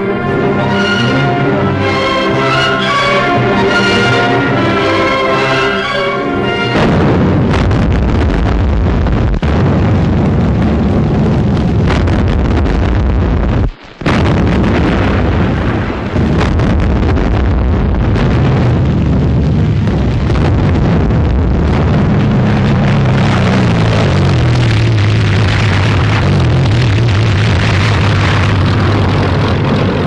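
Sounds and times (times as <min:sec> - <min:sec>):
shell explosions: 0:06.8 - 0:30.0.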